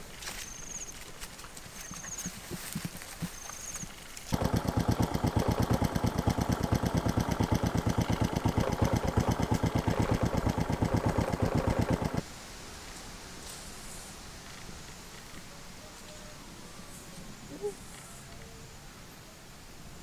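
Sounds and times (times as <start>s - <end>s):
motorcycle engine idling: 4.3s - 12.2s.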